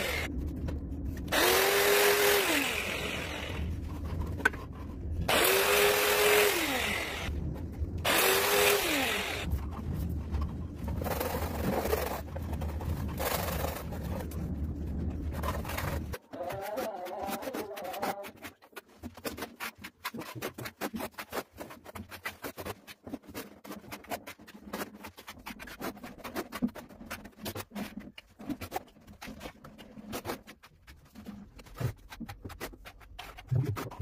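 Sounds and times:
trowel scraping adhesive: 1.3s - 7.3s, 8.1s - 9.6s, 15.2s - 30.6s.

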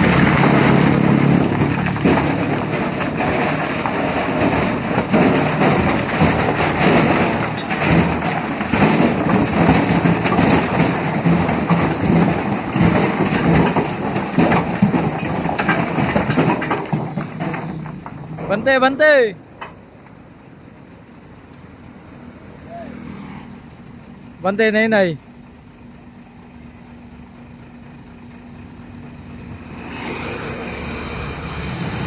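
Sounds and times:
boulders sliding and tumbling: 0.0s - 19.4s
diesel truck engine running: 0.0s - 32.0s.

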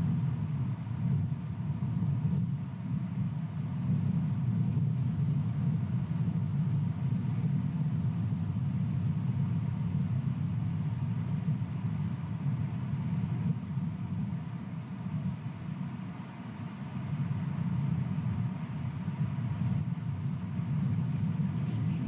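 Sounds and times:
wind buffeting microphone: 16.6s - 22.0s.

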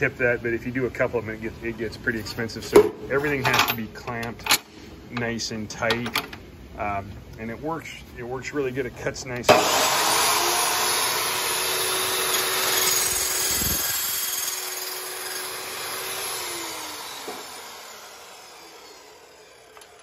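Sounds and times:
chop saw cutting steel: 9.5s - 20.0s.

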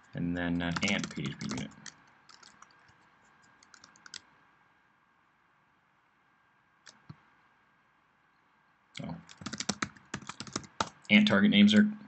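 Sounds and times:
computer keyboard clicks: 0.7s - 4.3s, 6.9s - 7.2s, 9.2s - 11.1s.

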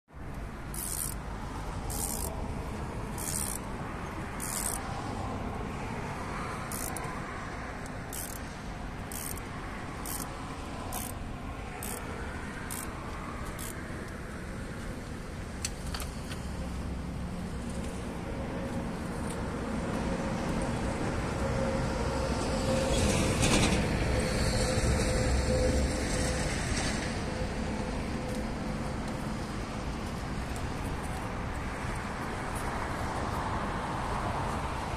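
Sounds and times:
ratchet wrench clicking: 0.6s - 2.4s, 3.1s - 4.9s, 6.6s - 7.2s, 7.8s - 8.4s, 9.0s - 11.2s, 11.8s - 13.8s.

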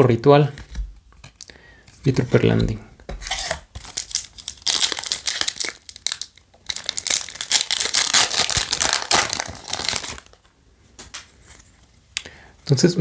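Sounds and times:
foil pack tearing open: 3.3s - 10.4s
foil wrapper crinkling: 3.3s - 10.5s.

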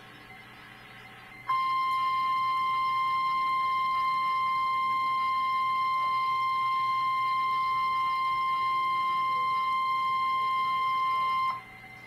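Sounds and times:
faint radio hiss: 0.0s - 5.3s
high alarm tone: 1.2s - 12.0s.

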